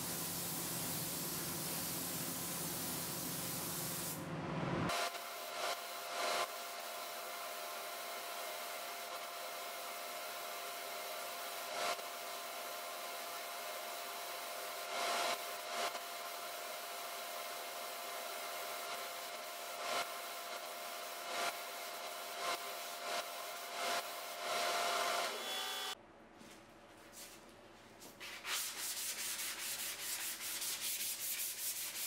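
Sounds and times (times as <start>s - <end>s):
spray booth air rushing: 0.0s - 4.2s
spray gun hissing: 0.0s - 4.2s.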